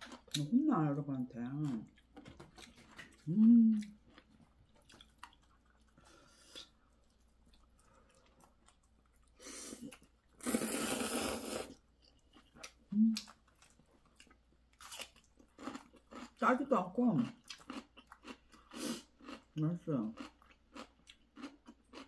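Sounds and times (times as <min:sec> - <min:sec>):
soft chewing clicks: 0:01.6 - 0:10.2, 0:17.4 - 0:19.5, 0:20.2 - 0:22.0
noodles being slurped: 0:09.4 - 0:11.8.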